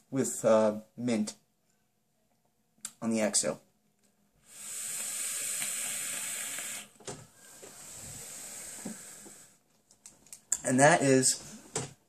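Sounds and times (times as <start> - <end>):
person exhaling vapor: 4.4 - 9.6
vape coil hissing: 4.4 - 9.6.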